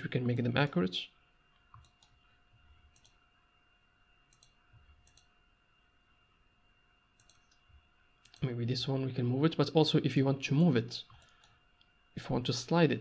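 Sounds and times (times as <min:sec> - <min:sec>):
faint steady whine: 0:00.0 - 0:13.0
computer mouse and keyboard clicks: 0:01.7 - 0:02.2, 0:02.8 - 0:03.2, 0:04.3 - 0:05.3, 0:07.2 - 0:07.6.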